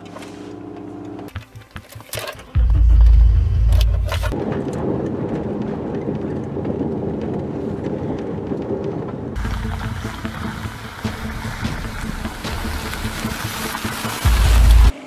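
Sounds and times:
car road noise on gravel: 2.2 - 15.0
car passing on gravel: 4.1 - 15.0.

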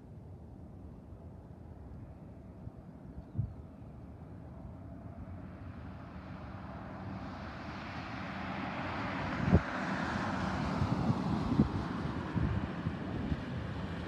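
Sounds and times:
jet airliner engine rush: 4.8 - 14.0.

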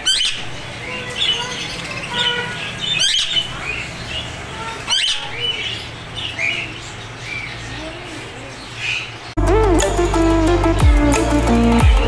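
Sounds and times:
parrot squawks: 0.0 - 3.8, 4.5 - 5.8
parrots chirping: 0.0 - 9.4.

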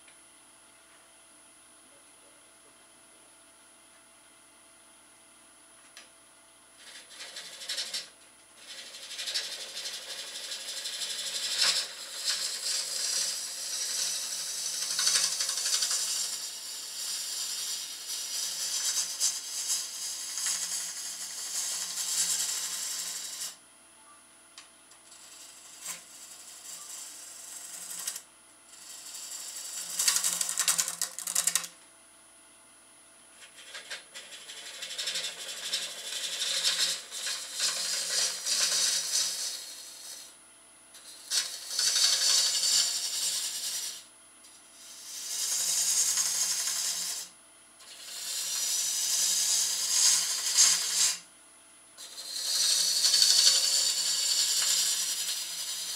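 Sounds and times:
faint lathe hum: 0.0 - 55.9
lathe tool cutting wood: 6.8 - 23.6, 28.8 - 30.8, 34.2 - 40.3, 41.0 - 44.0, 44.9 - 47.3, 47.9 - 51.2, 52.0 - 55.9.

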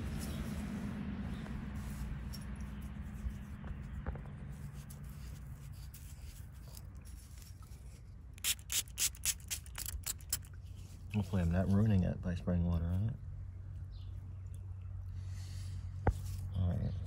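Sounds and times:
fingers rubbing soil off coin: 0.0 - 11.8
spray bottle squirting water: 8.4 - 10.6.

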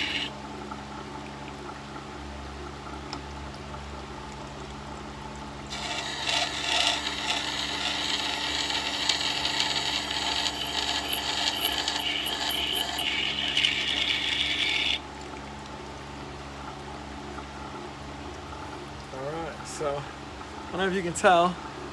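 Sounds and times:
grinder motor humming: 0.0 - 0.3, 5.7 - 15.0
blade grinding on stone wheel: 5.7 - 15.0.

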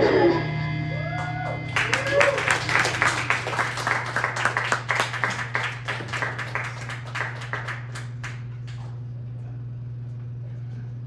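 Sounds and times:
steady low hum: 0.0 - 11.0
audience applauding: 1.1 - 9.0.

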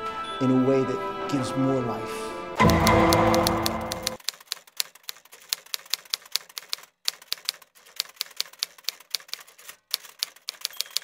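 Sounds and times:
typewriter key clicks: 2.6 - 11.0.

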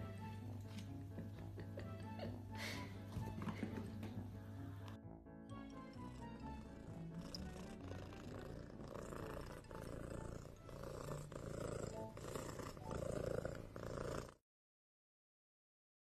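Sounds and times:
cat purring: 5.6 - 14.4.

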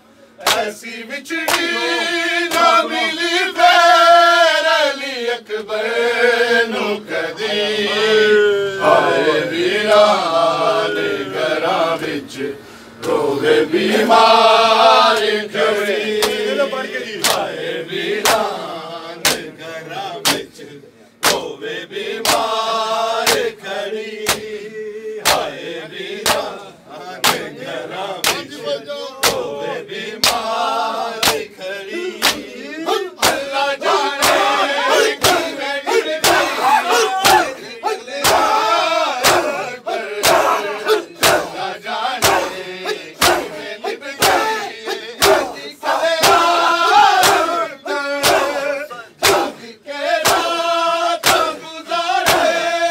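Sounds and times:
men chanting a lament: 0.0 - 52.9
hands slapping chests: 0.4 - 0.7, 1.5 - 1.7, 17.2 - 17.5, 19.2 - 19.5, 20.2 - 20.5, 21.2 - 21.5, 22.2 - 22.5, 23.2 - 23.5, 24.2 - 24.5, 25.2 - 25.5, 26.2 - 26.5, 27.2 - 27.5, 28.2 - 28.5, 29.2 - 29.5, 30.2 - 30.5, 31.2 - 31.5, 32.2 - 32.5, 33.2 - 33.5, 34.2 - 34.5, 35.1 - 35.5, 36.2 - 37.6, 39.2 - 39.5, 40.2 - 40.6, 41.2 - 41.5, 42.2 - 42.6, 43.2 - 43.5, 45.2 - 45.5, 46.2 - 46.5, 47.2 - 47.5, 48.2 - 48.6, 49.2 - 49.6, 50.2 - 50.5, 51.2 - 51.6, 52.2 - 52.6.

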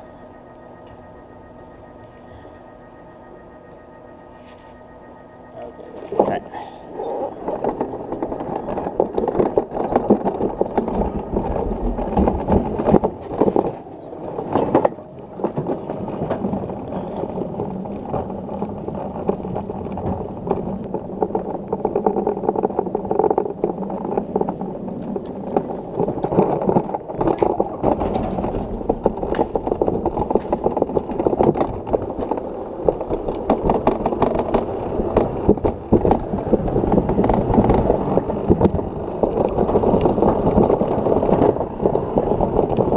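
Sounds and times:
faint high whine: 0.0 - 22.9
cart rattling on metal track: 5.6 - 42.9.

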